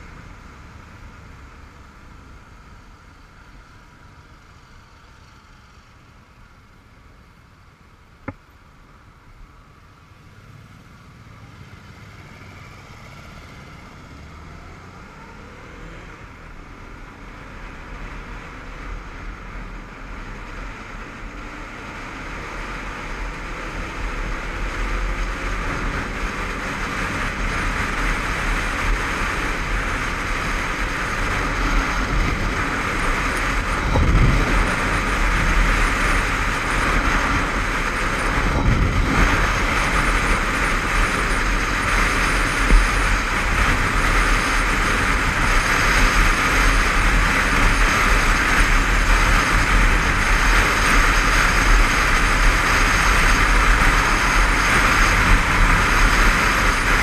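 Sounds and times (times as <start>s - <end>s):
motorcycle engine accelerating: 17.2s - 57.0s
wind noise: 20.7s - 57.0s.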